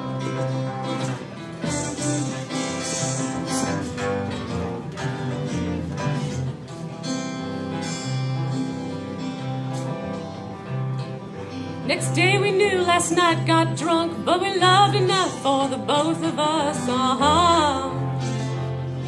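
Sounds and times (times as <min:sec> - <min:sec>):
plucked guitar: 0:00.0 - 0:19.0.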